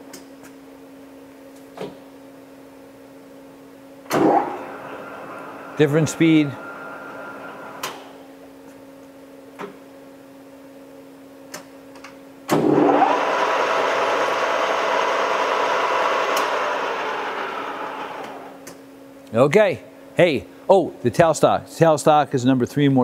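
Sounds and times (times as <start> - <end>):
steady motor hum: 2.1 - 19.2
lathe spindle whirring: 4.2 - 8.2, 12.6 - 18.6.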